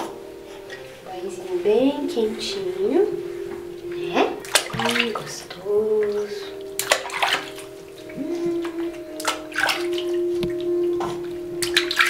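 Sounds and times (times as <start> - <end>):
soft calm music: 0.0 - 12.0
water splashing in a tub: 3.9 - 12.0.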